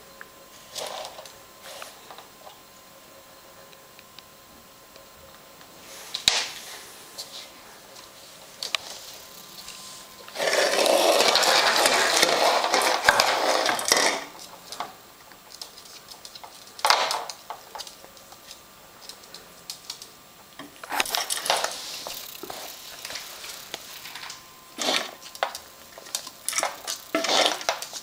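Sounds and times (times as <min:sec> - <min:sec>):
plastic bottle scraping on wooden floor: 0:10.3 - 0:14.2, 0:24.8 - 0:25.2, 0:27.1 - 0:27.9.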